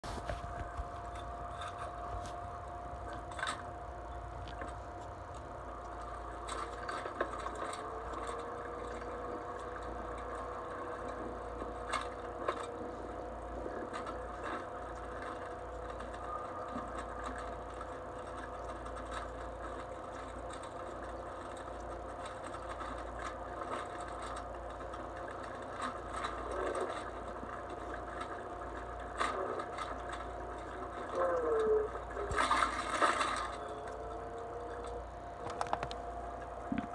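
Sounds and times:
mobility scooter motor whine: 0.0s - 36.9s.

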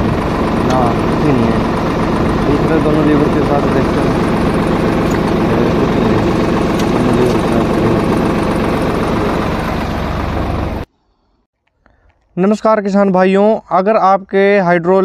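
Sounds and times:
tractor diesel engine running: 0.0s - 10.9s.

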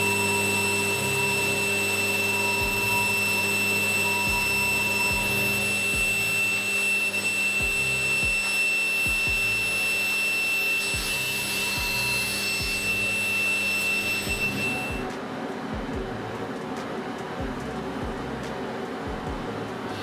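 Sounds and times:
high-pitched machine whine: 0.0s - 20.0s
kick-drum beat music: 2.6s - 2.9s, 4.3s - 6.3s, 7.6s - 9.6s, 11.0s - 12.9s, 14.2s - 19.7s.

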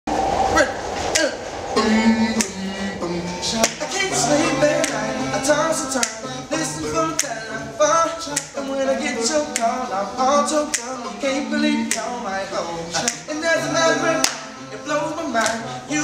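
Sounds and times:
men singing in close harmony: 1.7s - 16.0s
finger snaps: 7.2s - 7.4s, 8.3s - 8.5s, 9.5s - 9.7s, 10.7s - 10.9s, 11.9s - 12.1s, 13.0s - 13.2s.

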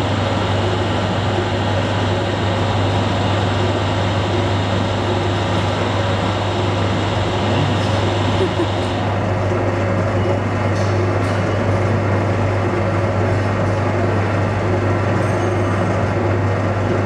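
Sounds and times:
mixer motor humming: 0.0s - 9.8s.

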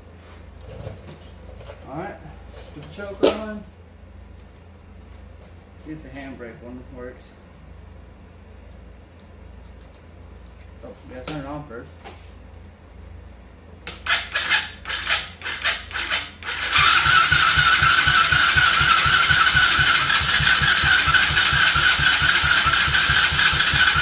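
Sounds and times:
atv engine cranking and running: 13.8s - 24.0s.

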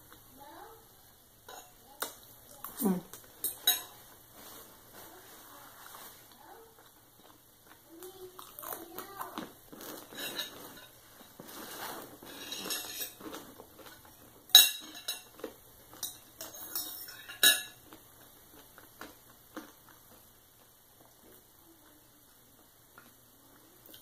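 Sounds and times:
knife and fork scraping plate: 10.0s - 13.3s.

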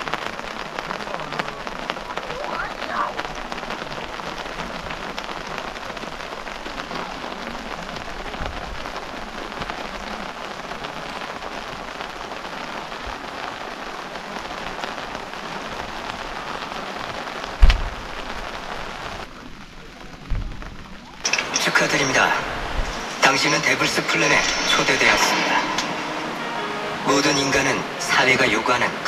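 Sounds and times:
rain on a tarp: 0.0s - 29.0s
loud thump: 17.6s - 18.0s.

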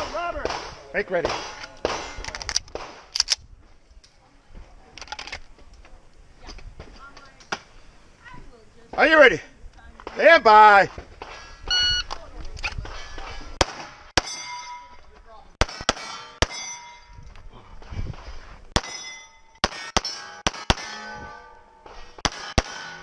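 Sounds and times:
steel target clanging: 12.9s - 17.2s, 18.8s - 23.0s
pistol shots: 18.8s - 21.0s, 22.2s - 23.0s.

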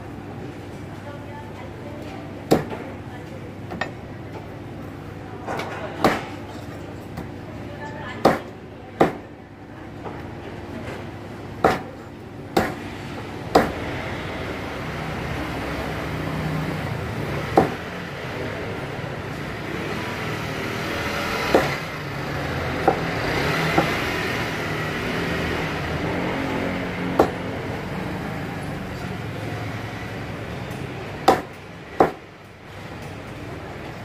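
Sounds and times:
steady background noise: 0.0s - 34.0s
cleaver chopping on cutting board: 8.2s - 9.2s, 11.6s - 11.9s, 12.6s - 12.8s, 13.5s - 13.8s, 17.6s - 17.8s, 21.3s - 21.8s, 27.1s - 27.4s, 31.2s - 32.2s.

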